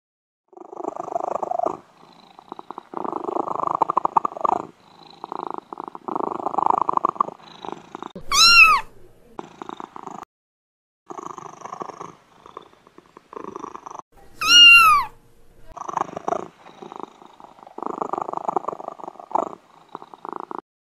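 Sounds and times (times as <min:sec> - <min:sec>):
cat purring: 0:00.5 - 0:10.3, 0:11.1 - 0:20.6
cat meow: 0:08.2 - 0:08.9, 0:14.4 - 0:15.2.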